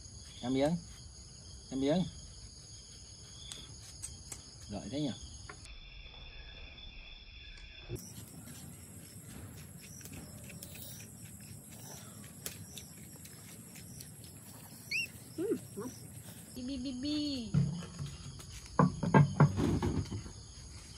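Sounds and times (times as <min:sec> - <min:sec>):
night insects trilling: 0:00.0 - 0:20.9
baby monkey squeaking: 0:12.6 - 0:16.0.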